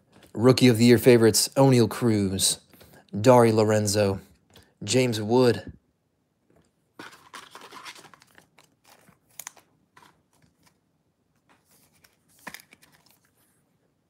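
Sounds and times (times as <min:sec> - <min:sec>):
wrappers crinkling: 0:07.0 - 0:10.8.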